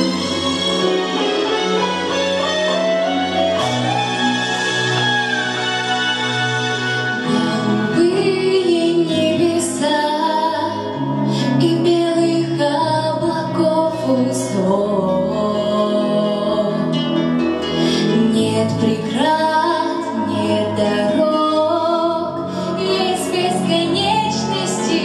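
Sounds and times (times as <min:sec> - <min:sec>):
instrumental accompaniment: 0:00.0 - 0:25.0
woman singing into microphone: 0:07.2 - 0:17.2, 0:17.9 - 0:25.0.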